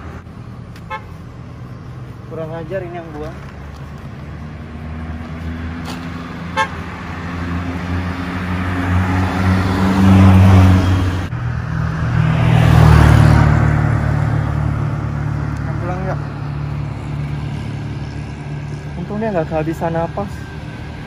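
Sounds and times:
vehicles passing on road: 0.0 - 21.0.

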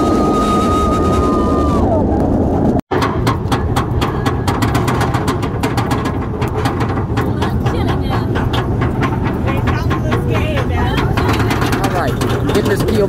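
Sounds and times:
low chain rumble: 0.1 - 13.0
rapid even clicking: 3.0 - 13.0.

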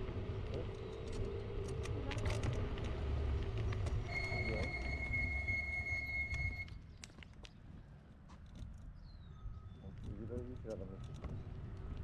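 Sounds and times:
high squeal: 4.0 - 6.7.

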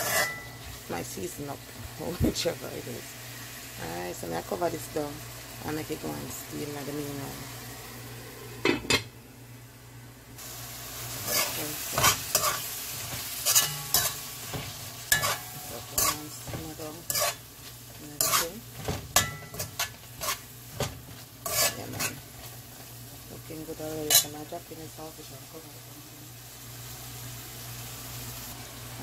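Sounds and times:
metal spoon scraping metal pot: 0.0 - 0.4, 13.4 - 14.2, 15.1 - 17.4, 18.2 - 18.6, 21.4 - 22.2
vegetables sizzling: 0.0 - 9.4, 10.3 - 29.0.

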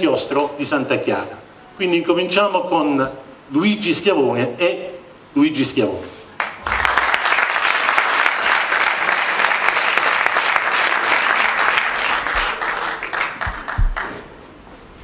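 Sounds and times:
audience applauding: 6.4 - 14.3
low thumps: 13.5 - 14.0.

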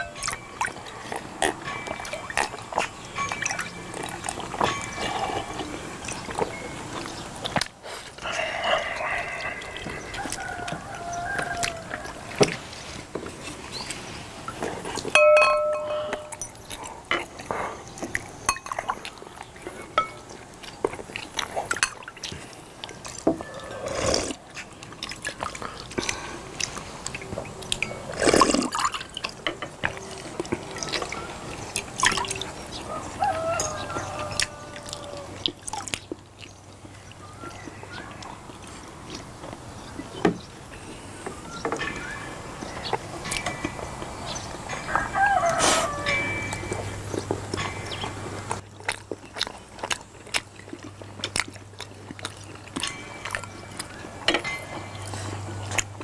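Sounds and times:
ladle clinking against glass: 0.0 - 6.8, 14.5 - 17.3, 18.5 - 19.0, 20.0 - 20.3, 46.0 - 48.0, 52.8 - 55.1
spoons and forks tapping: 14.5 - 16.6, 18.5 - 18.9, 20.0 - 20.2
person slurping a drink: 23.4 - 24.6, 28.0 - 29.0.

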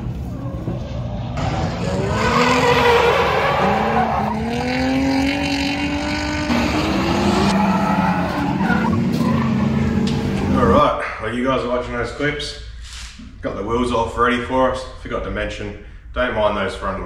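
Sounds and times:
tyres skidding and squealing: 0.0 - 10.8
car engine revving: 1.1 - 10.8.

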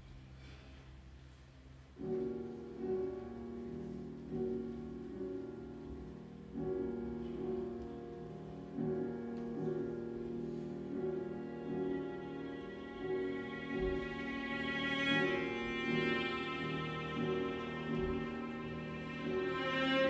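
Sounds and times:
classical piano chords: 0.0 - 20.0.

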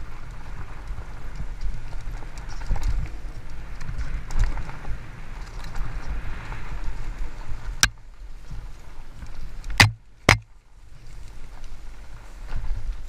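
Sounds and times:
bike tyres rumbling on dirt trail: 0.0 - 13.0
bike knocking over bumps: 9.7 - 10.5.

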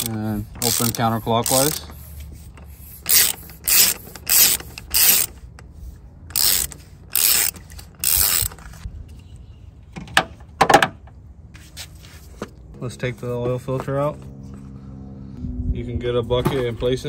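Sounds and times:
socket ratchet clicking: 3.1 - 5.3, 6.3 - 8.6.

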